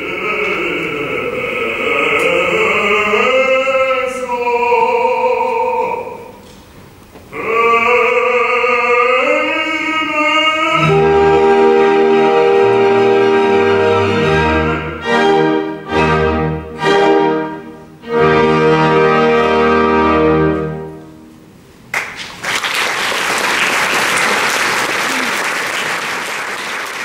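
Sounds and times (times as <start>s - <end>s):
orchestra playing chords: 10.6s - 21.8s
audience applause: 21.9s - 27.0s.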